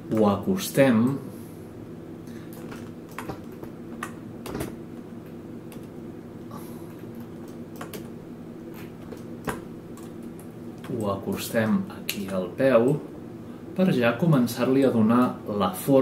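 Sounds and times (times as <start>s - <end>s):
steady low hum: 0.0s - 16.0s
keyboard and mouse clicks: 2.5s - 4.7s, 7.0s - 8.1s.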